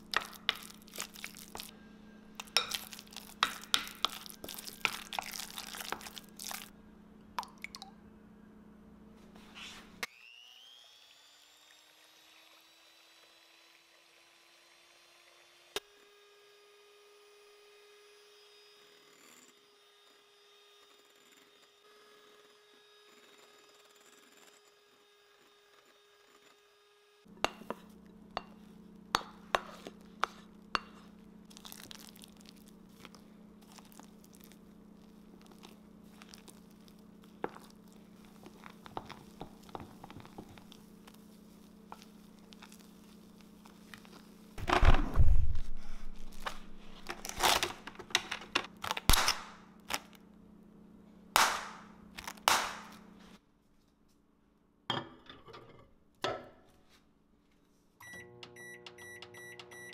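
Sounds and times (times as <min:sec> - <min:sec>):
plastic wrap crinkling: 0:00.0 - 0:01.7, 0:02.4 - 0:06.7, 0:31.5 - 0:44.6, 0:45.2 - 0:50.2, 0:51.6 - 0:53.0
spatula clicks and scrapes: 0:00.0 - 0:01.7, 0:02.4 - 0:06.7.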